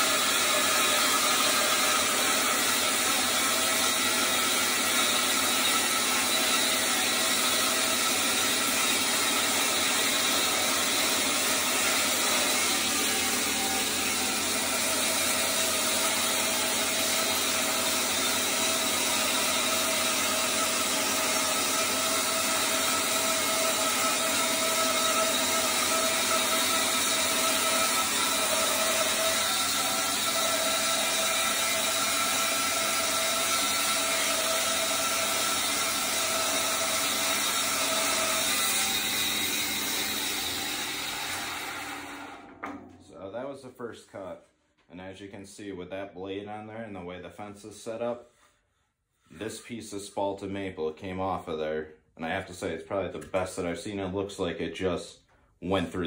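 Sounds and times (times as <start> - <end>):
bandsaw cutting wood: 0.0 - 43.3.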